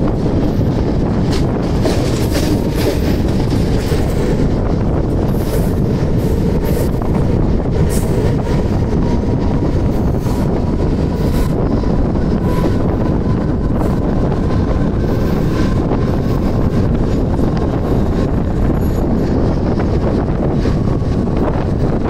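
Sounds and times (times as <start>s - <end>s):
train wheels rumbling on rails: 0.0s - 22.0s
wheels clicking over rail joints: 0.1s - 8.7s.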